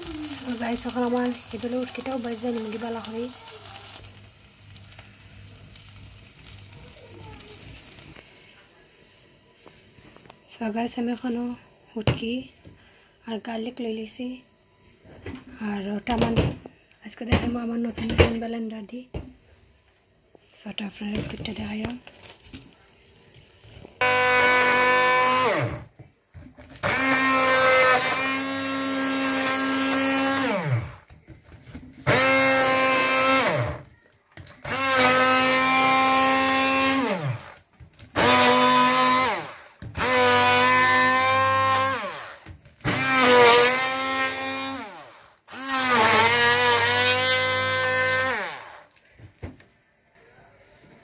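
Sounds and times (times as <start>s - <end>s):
hand blender motor whining: 24.0s - 25.9s, 26.8s - 31.0s, 32.0s - 33.8s, 34.6s - 48.9s.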